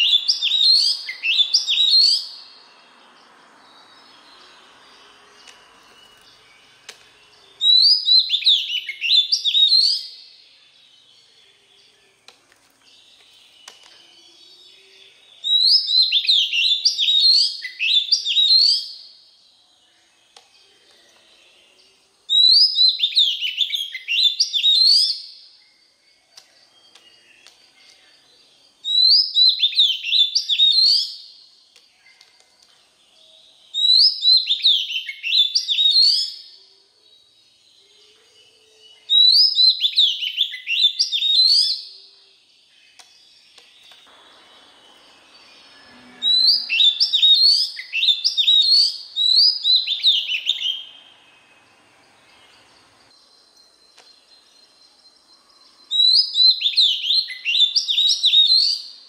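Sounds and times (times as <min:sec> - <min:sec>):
bird singing slurred whistles: 0:00.0 - 0:02.4, 0:04.0 - 0:10.4, 0:13.4 - 0:19.1, 0:22.3 - 0:25.8, 0:28.8 - 0:31.4, 0:33.2 - 0:36.6, 0:37.6 - 0:42.1, 0:43.9 - 0:51.0, 0:54.2 - 0:59.0.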